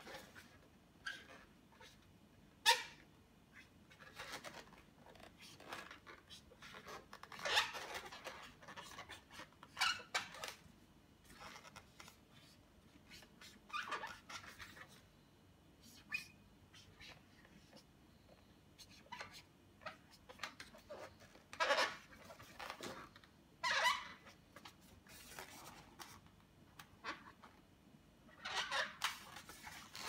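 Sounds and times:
marker drawing on balloon: 0.0 - 10.6, 11.2 - 15.1, 18.7 - 26.2, 28.3 - 30.0
latex balloon squeaking: 4.0 - 10.6, 13.2 - 15.0, 19.0 - 24.4, 28.3 - 30.0.

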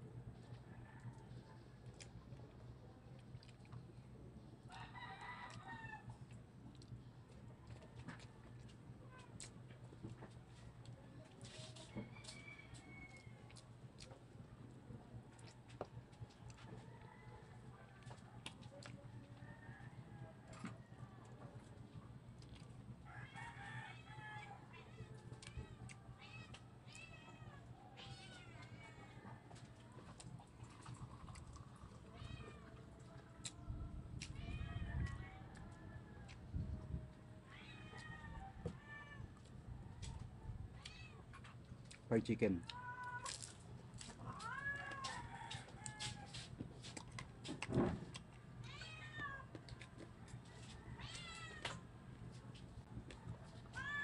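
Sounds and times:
low steady hum: 0.0 - 54.0
faint clicks of eating: 0.4 - 19.6, 20.2 - 22.9, 28.0 - 34.4, 39.3 - 53.9
rooster crowing: 4.7 - 6.2, 11.9 - 13.5, 44.4 - 46.5.

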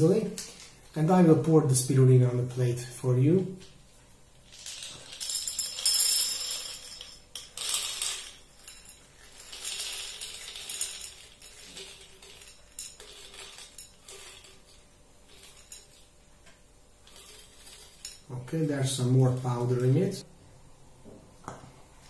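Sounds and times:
tablets clattering onto a plate: 4.6 - 16.1.

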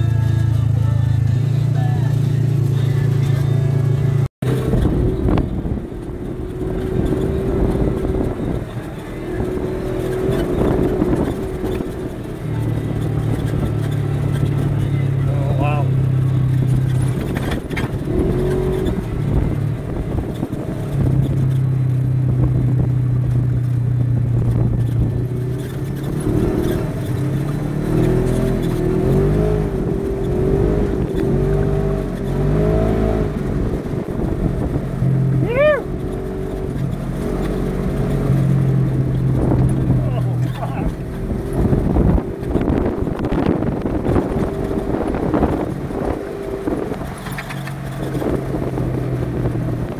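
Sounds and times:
utility vehicle engine droning: 0.0 - 49.9.

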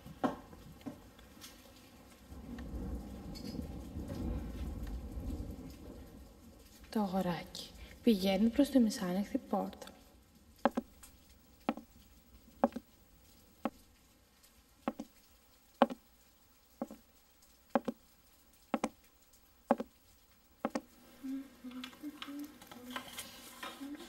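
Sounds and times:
slow footsteps: 10.7 - 13.9, 14.9 - 16.1, 16.8 - 20.9.

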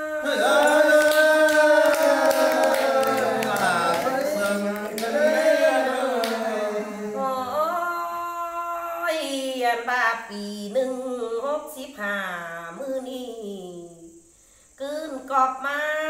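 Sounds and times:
man singing unaccompanied: 0.0 - 7.7.

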